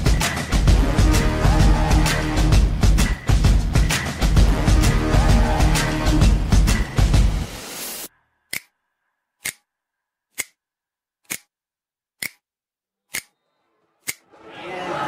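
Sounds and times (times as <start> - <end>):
music: 0.0 - 8.1, 13.3 - 15.0.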